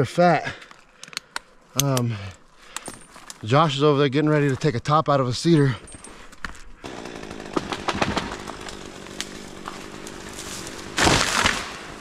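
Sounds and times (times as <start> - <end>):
faint chainsaw running: 6.8 - 12.0
pine branches rustling: 7.7 - 12.0.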